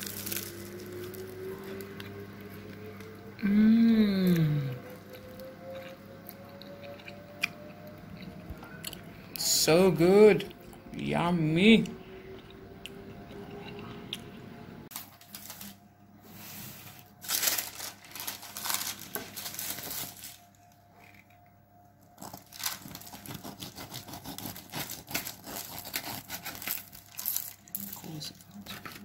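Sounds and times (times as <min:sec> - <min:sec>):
bread crackling on paper: 0:00.0 - 0:02.6, 0:14.9 - 0:15.9, 0:17.0 - 0:21.0, 0:22.0 - 0:29.0
knife sawing crunchy crust: 0:22.2 - 0:27.3.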